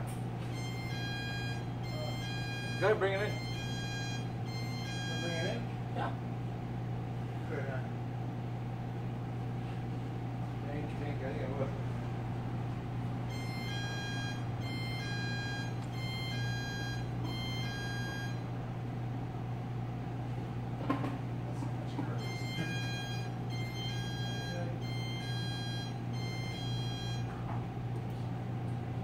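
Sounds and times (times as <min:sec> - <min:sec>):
steady low hum: 0:00.0 - 0:29.0
electronic ringing tone: 0:00.5 - 0:05.6, 0:13.3 - 0:18.5, 0:22.2 - 0:27.3.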